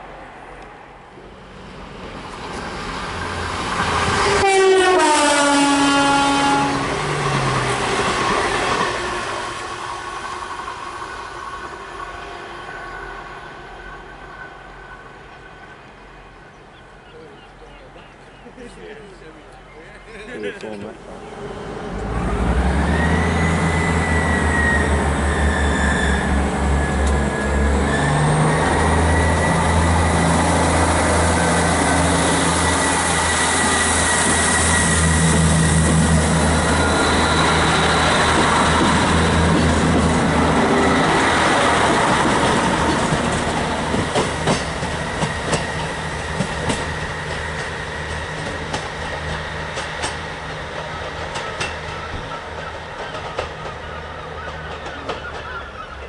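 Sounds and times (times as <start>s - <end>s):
diesel train engine throb: 21.0s - 56.0s
train wheels clicking over rail joints: 33.6s - 56.0s.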